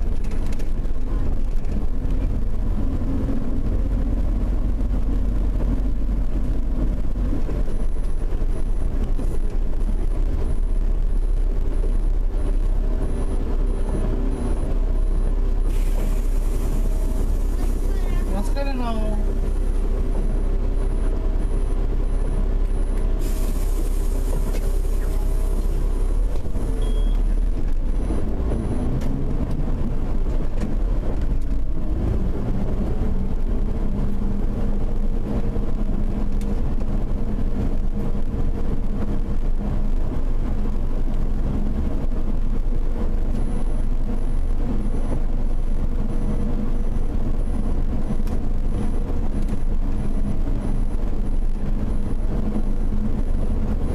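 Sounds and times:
bus engine: 0:00.0 - 0:53.9
compressed air hiss: 0:15.7 - 0:16.8, 0:23.2 - 0:25.1.

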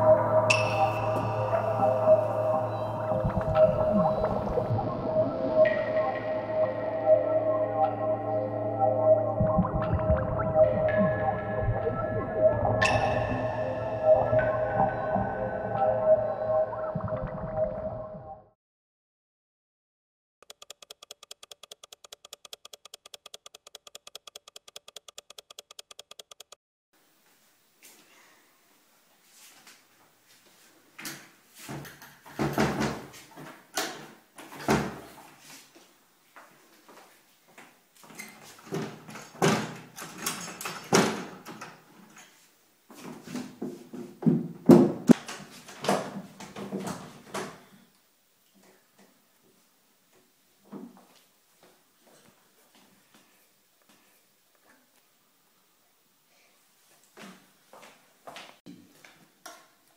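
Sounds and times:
fast clock ticking: 0:20.4 - 0:26.6.

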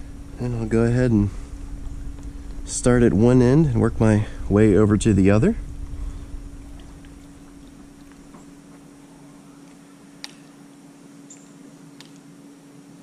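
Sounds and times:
pool pump humming: 0:00.0 - 0:13.0.

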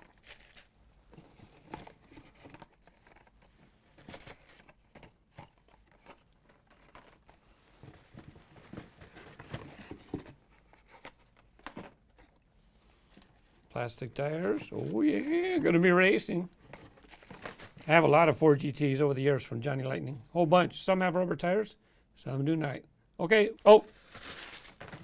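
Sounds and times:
cardboard and plastic packaging rustling: 0:00.0 - 0:12.4, 0:13.0 - 0:18.2, 0:23.7 - 0:25.0.

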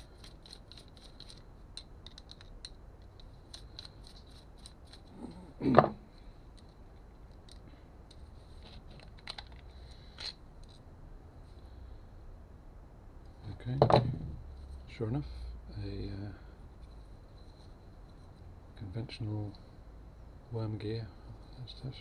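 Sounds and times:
screwdriver scraping metal: 0:00.0 - 0:01.4.

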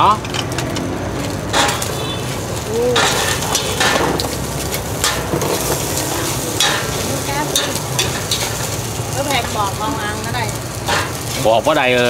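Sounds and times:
food sizzling in oil: 0:00.0 - 0:12.0
metal spatula scraping: 0:01.5 - 0:08.8.

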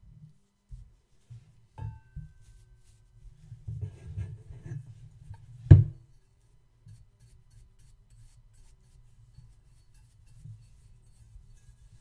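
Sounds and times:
brush rustling on metal: 0:00.6 - 0:05.7, 0:06.5 - 0:12.0.

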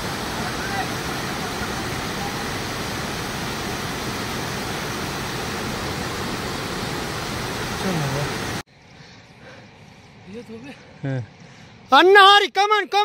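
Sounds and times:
stream rushing over boulders: 0:00.0 - 0:08.6.

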